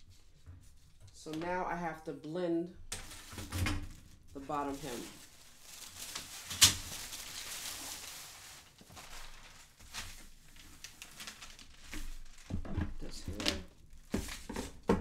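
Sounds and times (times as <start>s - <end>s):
paper rustling and sliding: 4.6s - 12.6s.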